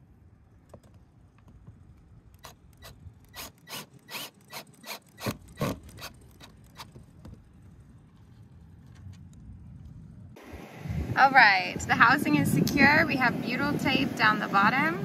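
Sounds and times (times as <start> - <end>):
cordless drill driving screw into metal: 2.4 - 6.9.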